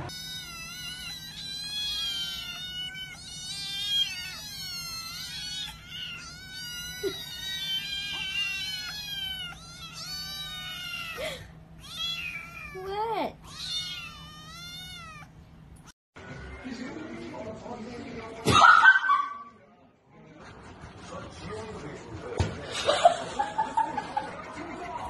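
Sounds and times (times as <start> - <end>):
kittens mewing: 0.0 - 15.9.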